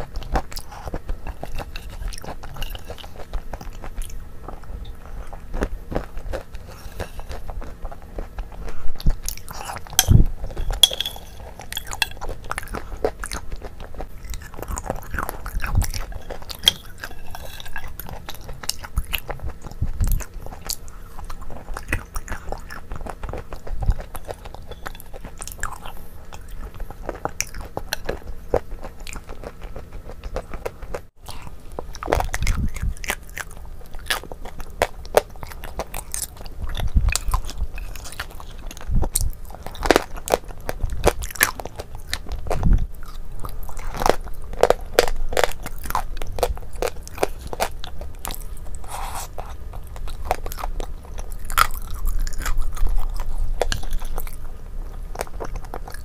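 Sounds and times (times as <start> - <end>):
wet mouth sounds and chewing: 0.0 - 56.0
spoon clicking on glass bowl: 10.0 - 12.2.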